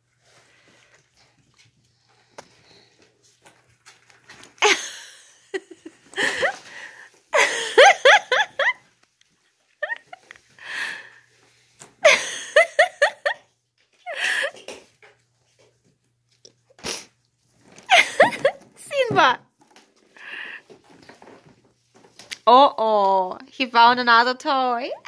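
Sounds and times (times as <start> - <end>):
person giggling: 4.6 - 8.8, 9.8 - 10.3, 12.0 - 13.4, 17.9 - 18.7.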